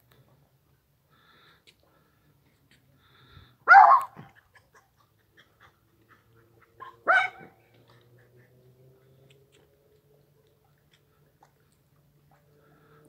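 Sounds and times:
dog barking: 3.6s - 4.4s, 6.8s - 7.6s.

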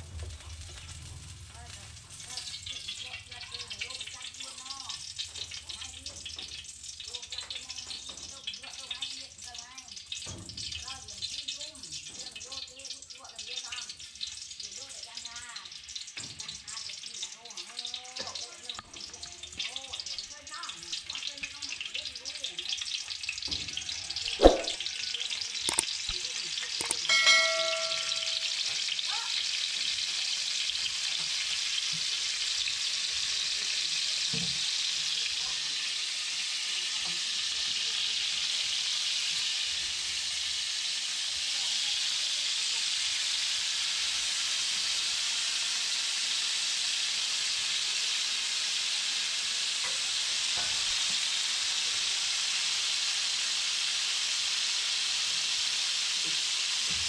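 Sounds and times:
food sizzling in oil: 0.0s - 57.0s
short metallic ring: 26.8s - 28.6s.

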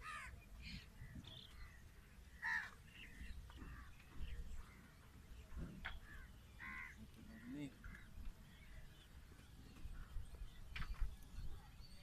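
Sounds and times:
crows cawing: 0.0s - 0.3s, 2.4s - 2.8s, 5.9s - 8.2s.

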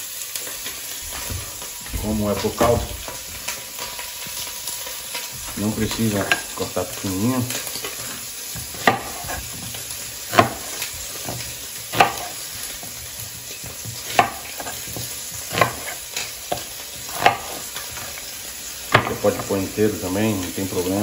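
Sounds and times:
oil sizzling in a pot: 0.0s - 21.0s
knife chopping on wooden board: 7.8s - 19.6s.

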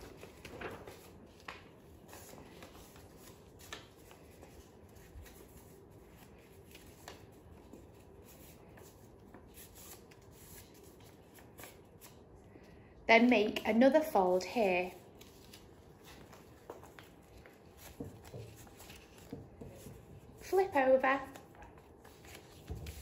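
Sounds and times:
paper rustling and crinkling: 0.0s - 12.3s, 14.8s - 23.0s.

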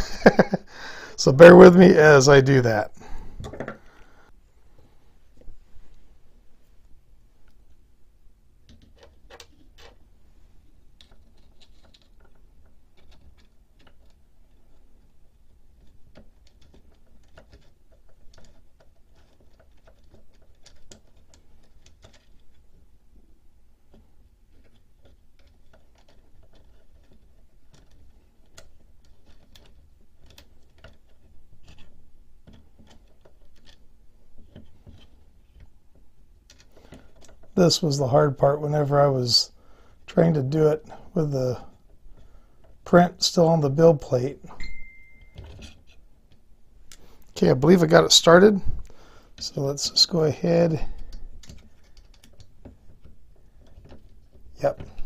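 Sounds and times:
small clicks and ticks: 11.0s - 22.8s, 23.9s - 37.6s, 50.7s - 55.0s.

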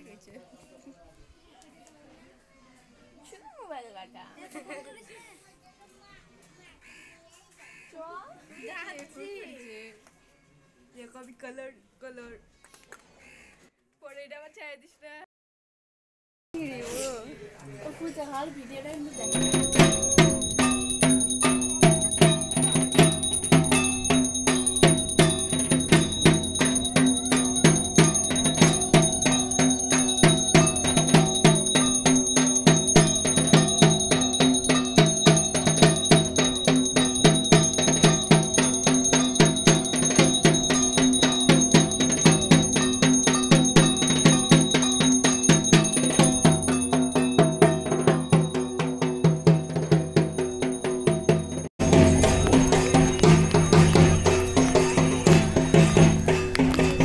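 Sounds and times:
high ringing tone: 19.2s - 57.0s
music with fast beat: 19.2s - 57.0s.

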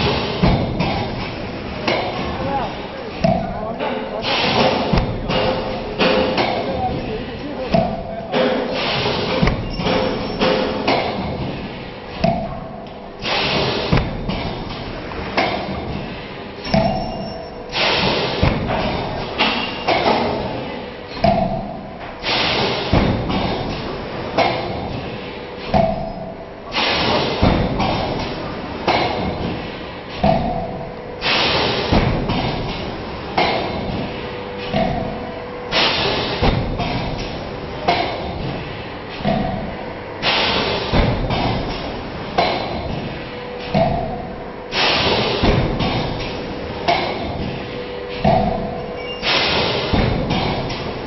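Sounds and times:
press thumps and clanks: 0.0s - 51.0s
machine hissing: 4.2s - 6.4s.

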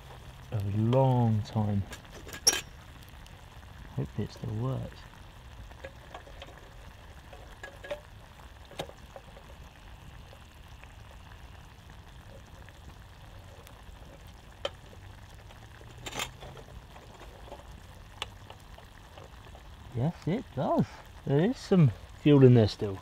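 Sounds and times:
campfire crackling: 0.0s - 23.0s
sharp clicks and pops: 5.0s - 21.2s.

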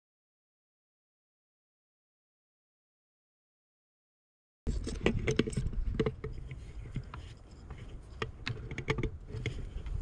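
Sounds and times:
rifle bolt clicks and rattles: 4.7s - 10.0s.

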